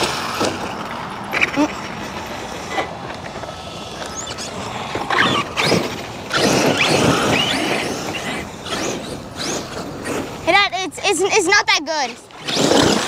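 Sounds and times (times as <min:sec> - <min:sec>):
electric motor whine: 0:02.4 - 0:10.4.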